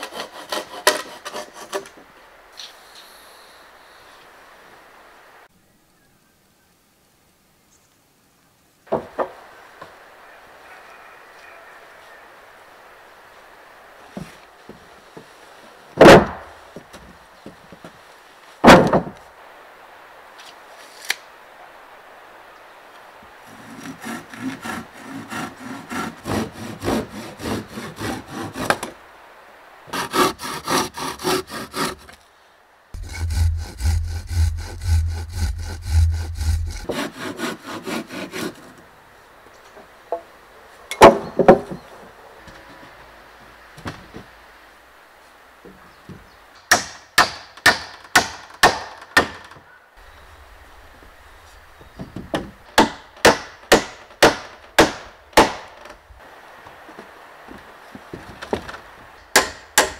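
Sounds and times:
hand saw cutting wood: 0:00.0 - 0:02.0, 0:23.5 - 0:29.0, 0:29.9 - 0:32.2, 0:33.0 - 0:38.8.

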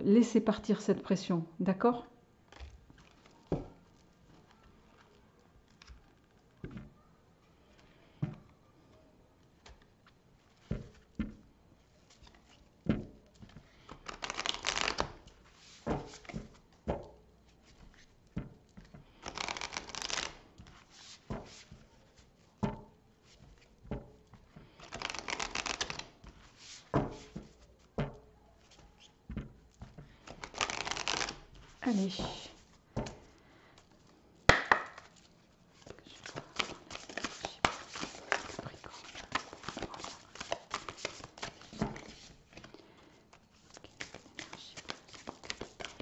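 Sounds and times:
cards tapping and knocking: 0:02.5 - 0:03.8, 0:10.6 - 0:11.4, 0:12.2 - 0:33.9, 0:34.5 - 0:46.0
cards being shuffled: 0:13.3 - 0:16.7, 0:18.8 - 0:22.5, 0:24.3 - 0:28.0, 0:28.6 - 0:46.0.

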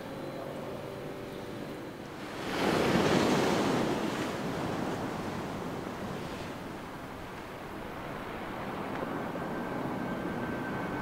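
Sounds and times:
sea waves breaking on stony shore: 0:02.1 - 0:07.5.

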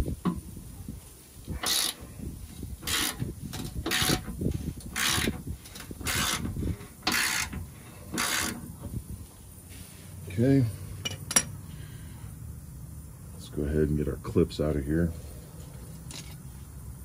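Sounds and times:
ratchet wrench clicking: 0:01.6 - 0:02.0, 0:02.8 - 0:08.7.

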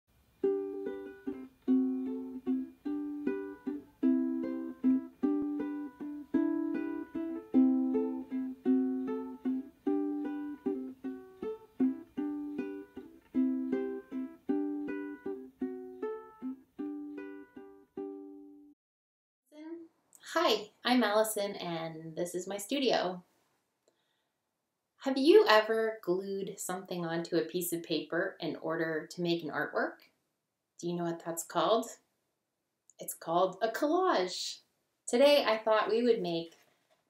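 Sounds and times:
instrumental music with short chords: 0:00.4 - 0:18.7.

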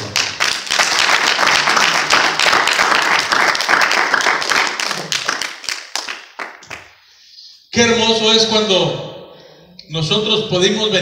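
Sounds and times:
congregation applauding: 0:00.0 - 0:07.0.

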